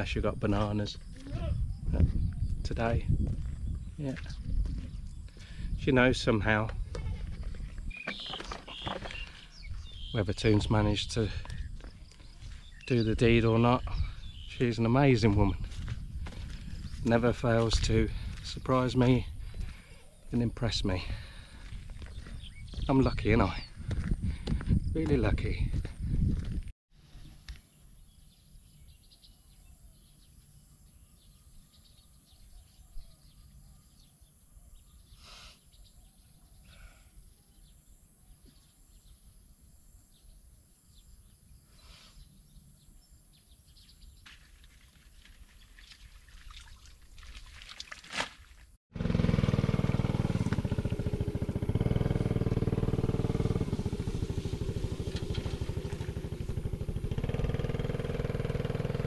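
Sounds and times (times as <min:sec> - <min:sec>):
faint bird chirps: 0:07.0 - 0:10.7
engine running loudly: 0:48.9 - 0:59.0.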